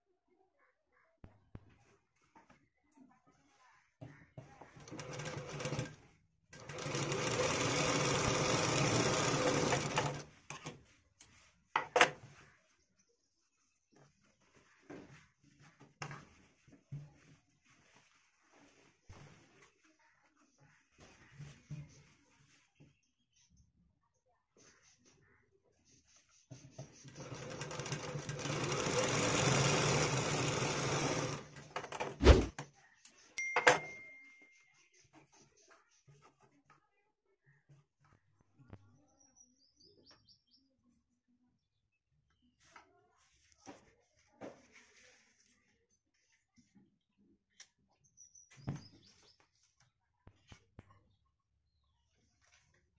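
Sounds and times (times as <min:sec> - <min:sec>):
sewing machine running: 0:04.8 - 0:06.0, 0:06.6 - 0:10.4, 0:27.0 - 0:32.5.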